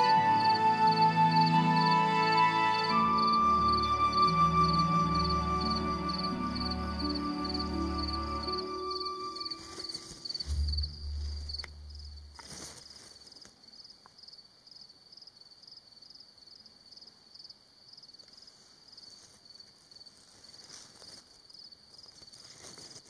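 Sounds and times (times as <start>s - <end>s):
insect chirping: 0.0s - 23.0s
low hum: 10.4s - 12.6s.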